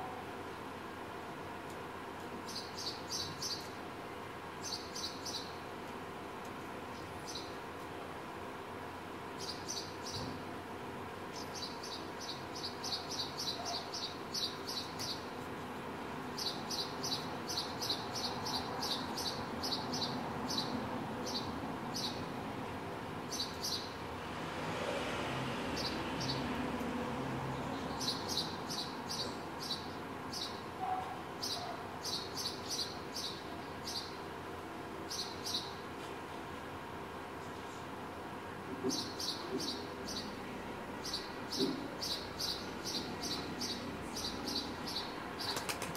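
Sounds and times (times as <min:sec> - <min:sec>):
street hum: 0:00.0 - 0:45.9
sparrow chirping: 0:02.5 - 0:03.8, 0:04.6 - 0:05.6, 0:07.0 - 0:07.6, 0:09.4 - 0:10.3, 0:11.3 - 0:15.3, 0:16.4 - 0:22.3, 0:23.3 - 0:24.0, 0:27.6 - 0:30.7, 0:31.4 - 0:34.2, 0:35.1 - 0:35.8, 0:38.9 - 0:40.4, 0:41.0 - 0:45.6
vehicle passing: 0:24.1 - 0:28.4.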